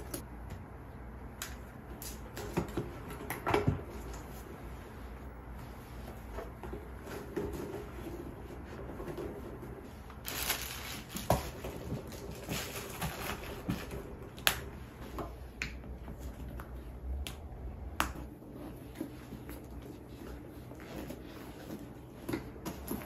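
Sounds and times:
handbag rustling: 10.0s - 14.0s.

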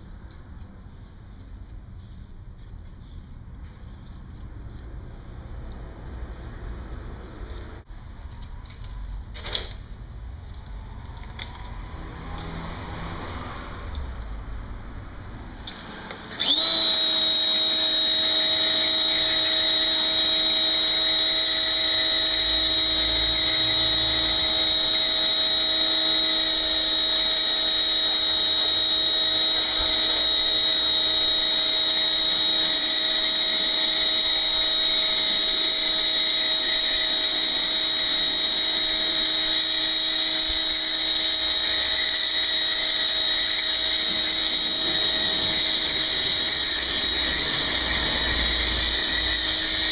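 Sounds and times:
pressure washer whine: 15.6s - 49.9s
foam spray hissing: 26.3s - 49.9s.

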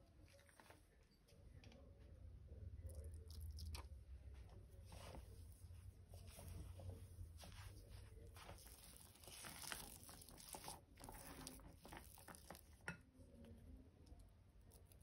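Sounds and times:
spatula scraping a bowl: 8.6s - 12.8s.

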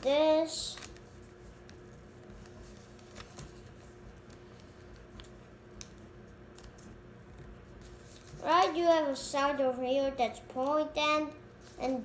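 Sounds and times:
paper rustling and creasing: 0.0s - 8.9s
low steady hum: 0.0s - 12.0s.

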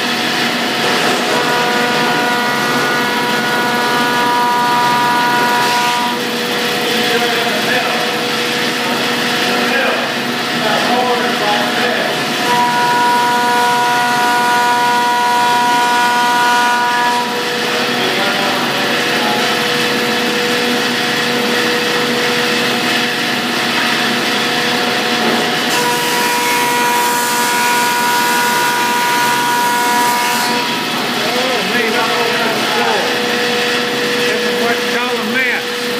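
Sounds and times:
thickness planer whining: 0.0s - 35.9s.

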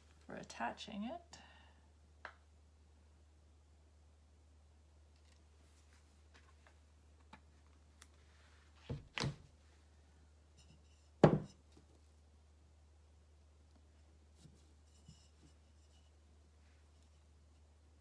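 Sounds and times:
plastic bottle knocking down: 11.2s - 11.5s
clay pot thump on surface: 11.2s - 11.6s.

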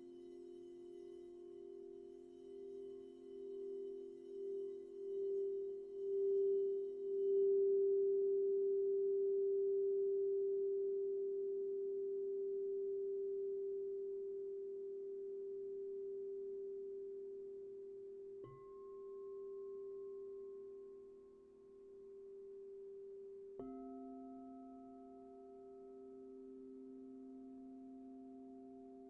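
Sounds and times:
singing bowl ringing: 0.0s - 13.8s.

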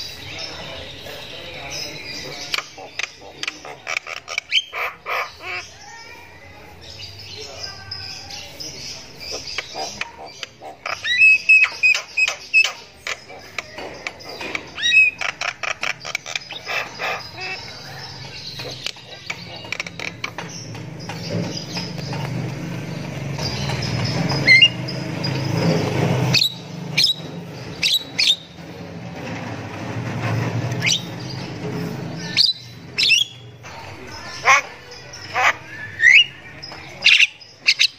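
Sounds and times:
bird clicking chatter: 2.5s - 5.0s, 9.3s - 25.4s
bird whistled notes: 35.6s - 36.4s.

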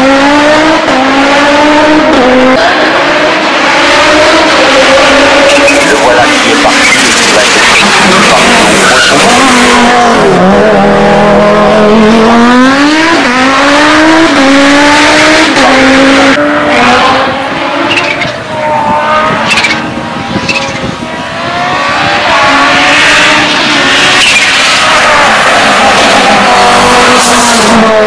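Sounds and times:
race car engine accelerating: 0.0s - 28.0s.

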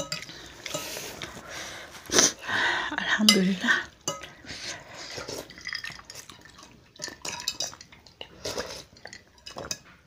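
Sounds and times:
cutlery scraping a ceramic bowl: 0.0s - 1.4s.

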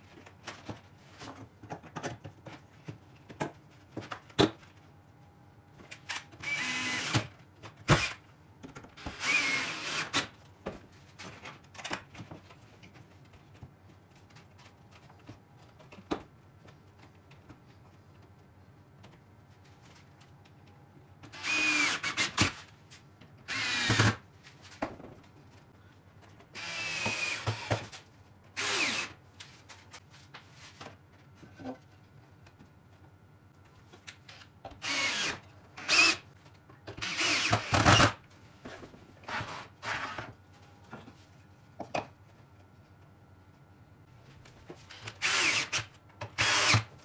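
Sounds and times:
cordless drill bursts: 6.4s - 7.3s, 9.1s - 10.2s, 21.4s - 22.5s, 23.5s - 24.2s, 26.6s - 27.8s, 28.6s - 29.1s, 34.8s - 36.2s, 37.0s - 38.2s, 45.2s - 46.9s.

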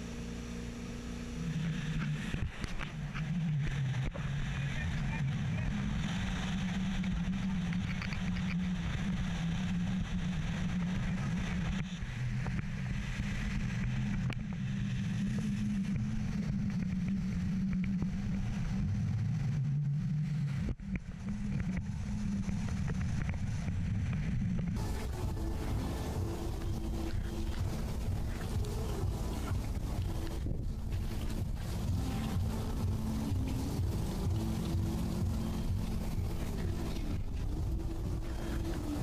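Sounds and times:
boat engine running: 0.0s - 39.0s
wind rushing: 20.3s - 39.0s
water rushing: 20.8s - 39.0s.

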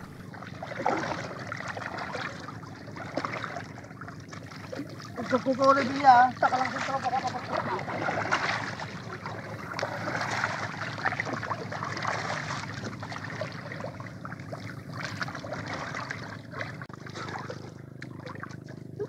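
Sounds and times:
steady low hum: 0.0s - 19.0s
water splashing against boat: 0.0s - 19.0s.

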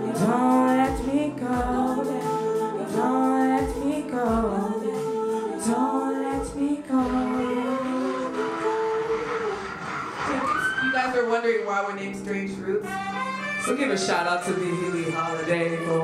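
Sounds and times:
backing track with low beat: 0.0s - 8.8s
women singing long notes: 0.0s - 9.6s.

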